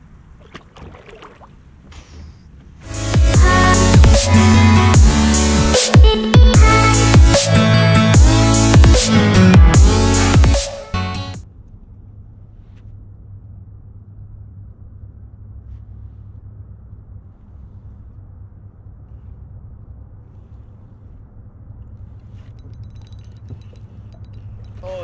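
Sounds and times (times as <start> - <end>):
steady low rumble: 0.0 - 10.6, 11.4 - 25.0
fishing reel clicks and rustles: 22.3 - 24.9.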